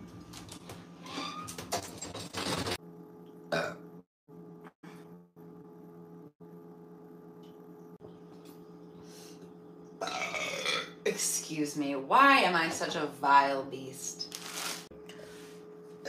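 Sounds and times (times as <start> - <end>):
steady low hum: 2.8 - 16.0
woman burping: 3.5 - 3.9, 10.0 - 11.0.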